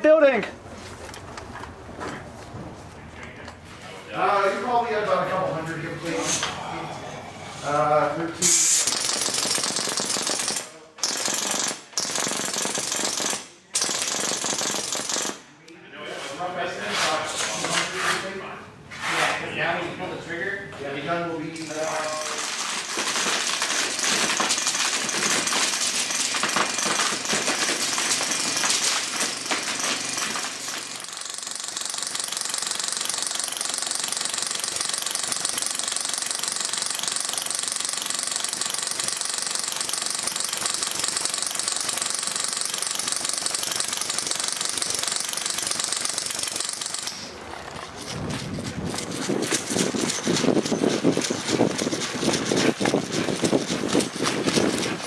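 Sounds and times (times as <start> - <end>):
airsoft minigun firing: 8.4 - 15.4, 21.6 - 55.0.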